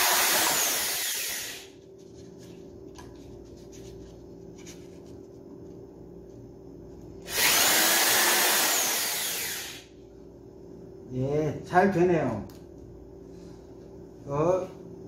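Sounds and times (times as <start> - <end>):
electric drill drilling plastic: 0.0 - 1.7, 7.3 - 9.8.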